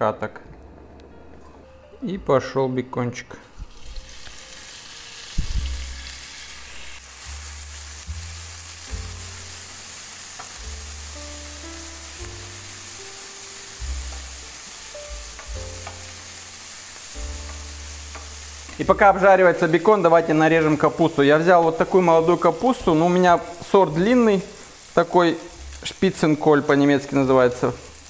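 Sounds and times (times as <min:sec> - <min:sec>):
bacon sizzling in a frying pan: 0:03.6 - 0:28.0
background music with bass line: 0:05.4 - 0:09.8, 0:10.6 - 0:16.5.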